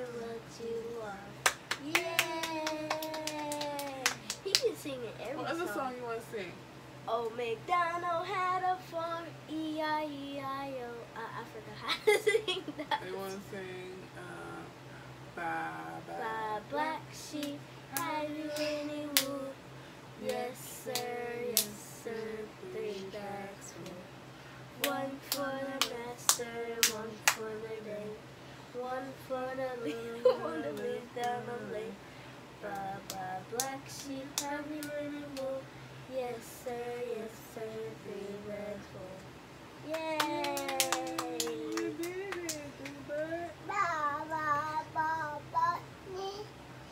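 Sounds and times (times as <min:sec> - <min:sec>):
woman and child singing: 0:00.0 - 0:05.8, 0:07.1 - 0:11.9, 0:15.4 - 0:19.6, 0:20.2 - 0:24.1, 0:24.8 - 0:32.0, 0:32.6 - 0:45.9
hand claps: 0:01.4 - 0:04.7, 0:39.9 - 0:43.3.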